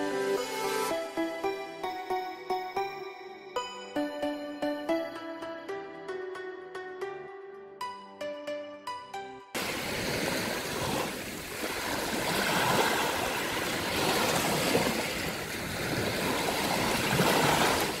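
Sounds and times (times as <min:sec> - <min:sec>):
waves washing onto shore: 0:09.6 - 0:18.0.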